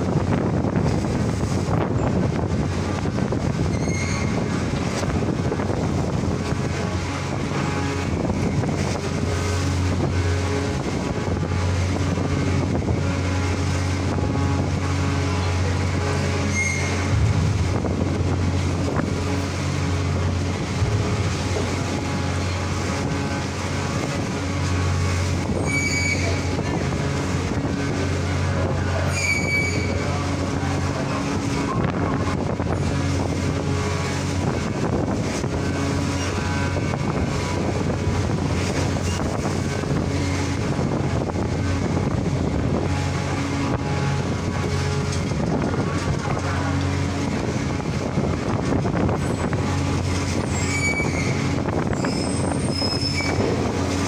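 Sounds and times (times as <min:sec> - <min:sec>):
ferry diesel engines droning: 0:00.0 - 0:54.0
water noise: 0:00.0 - 0:54.0
wind: 0:00.0 - 0:54.0
short high whistle-like tones: 0:16.5 - 0:17.1.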